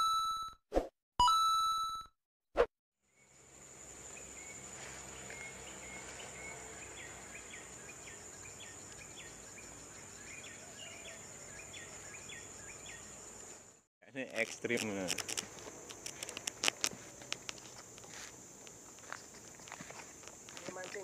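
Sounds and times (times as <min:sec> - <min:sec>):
high-pitched insect drone: 0:14.2 - 0:21.0.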